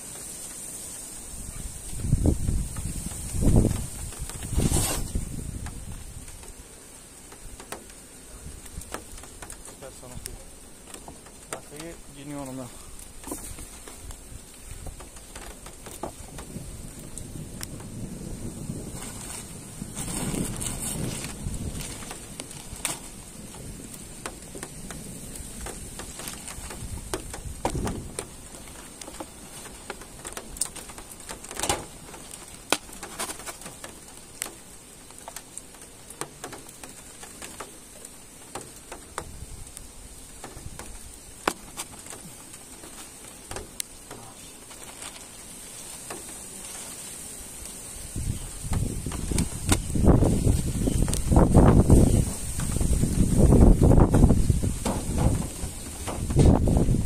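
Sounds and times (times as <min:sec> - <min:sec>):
faint high-pitched hiss: 0:00.0 - 0:57.0
light rain: 0:00.0 - 0:57.0.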